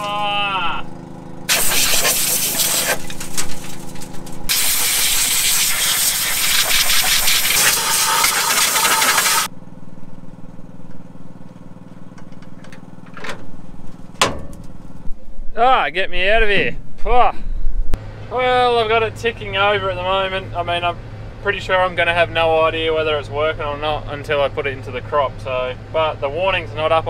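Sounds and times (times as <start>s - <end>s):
engine idling hum: 0.0s - 15.7s, 16.5s - 27.0s
compressed air blow gun blasting: 1.5s - 3.5s, 4.5s - 9.5s.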